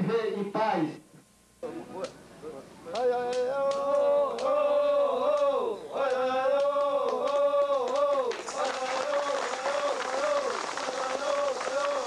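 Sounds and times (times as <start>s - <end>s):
men chanting held notes: 2.9s - 12.0s.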